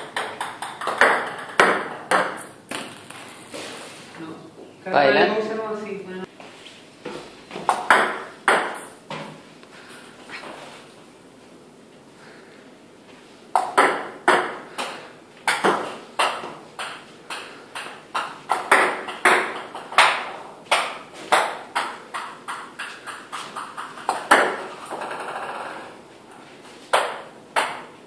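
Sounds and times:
table tennis balls clicking: 0.0 - 3.5, 7.6 - 9.0, 13.5 - 28.0.

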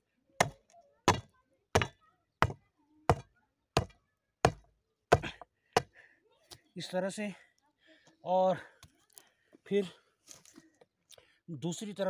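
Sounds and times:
bar thudding on stones: 0.4 - 5.9.

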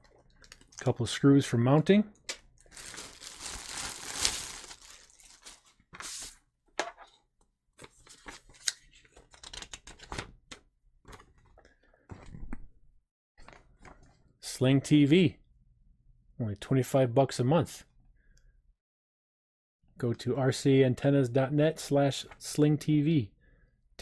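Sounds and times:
plastic bag crinkling: 2.6 - 6.2
paper leaflets rustling: 2.7 - 6.4.

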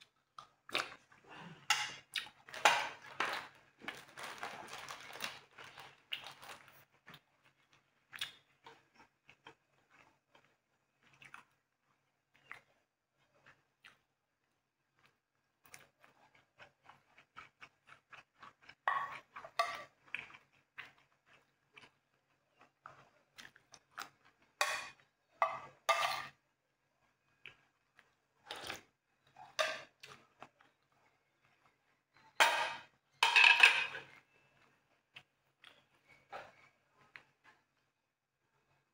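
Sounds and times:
cutlery clinking on plates: 24.6 - 26.3, 32.4 - 34.1.

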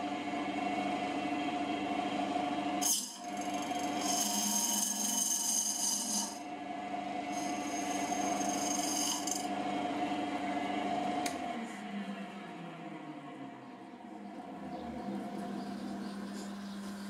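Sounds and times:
wood lathe humming: 2.8 - 6.5, 7.2 - 9.6.

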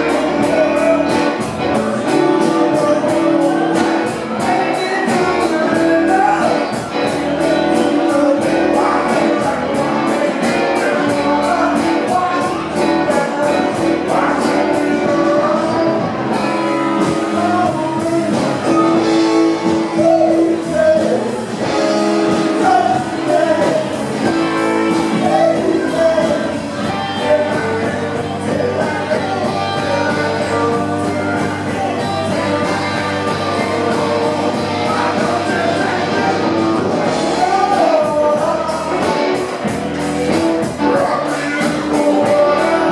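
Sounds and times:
lead vocalist singing: 0.0 - 42.9
live rock band playing: 0.0 - 42.9.

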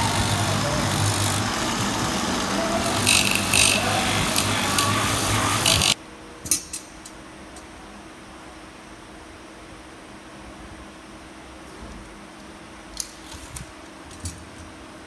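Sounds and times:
die grinder cutting tyre: 0.0 - 6.0.

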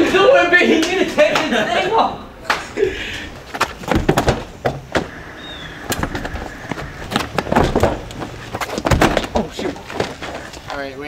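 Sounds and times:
shoes scraping on pavement: 3.4 - 11.0
knocks and thumps on bus panel: 3.6 - 5.1, 7.0 - 9.6.

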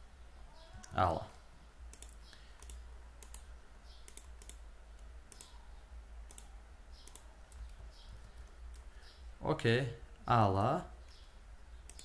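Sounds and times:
faint low hum: 0.0 - 12.0
computer mouse clicking: 0.7 - 5.6, 6.3 - 9.0.

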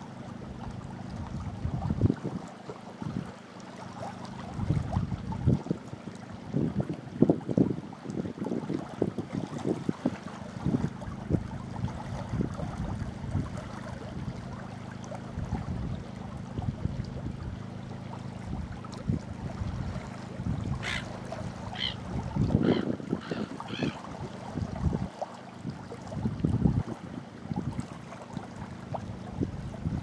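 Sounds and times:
steady low hum: 0.0 - 8.1, 8.9 - 30.0
small waves lapping on rock: 0.0 - 30.0
wind: 0.0 - 30.0
short bird calls: 20.8 - 22.0, 22.6 - 24.0.

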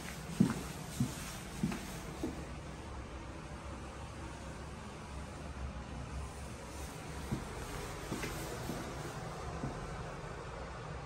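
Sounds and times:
footsteps on hardwood floor: 0.0 - 2.6, 7.0 - 9.9.

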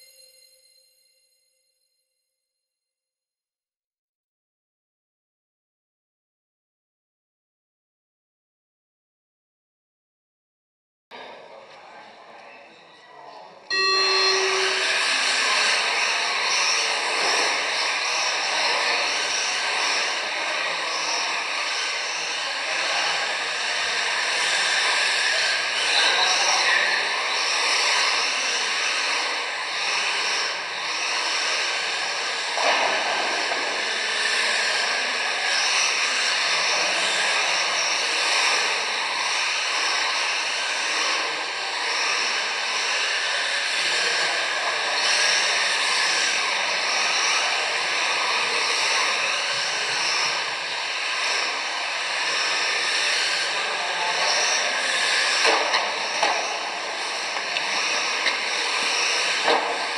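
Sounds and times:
high-pitched electric motor whine: 13.7 - 59.9.

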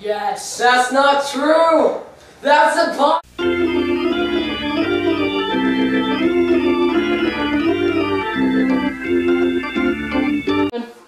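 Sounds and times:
organ playing chords: 3.3 - 10.7.

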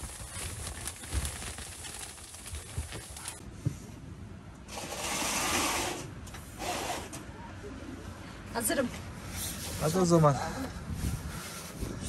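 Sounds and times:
window blind sliding swish: 4.7 - 7.2.

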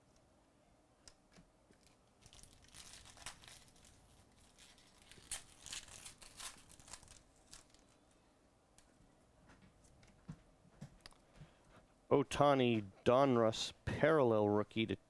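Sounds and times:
foil wrapper tearing and crinkling: 2.2 - 8.0.

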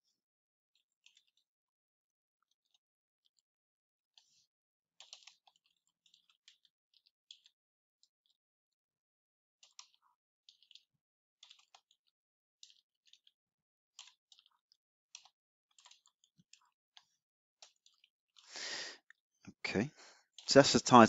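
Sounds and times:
faint keyboard typing: 0.8 - 1.5, 4.2 - 8.4, 9.6 - 21.0.

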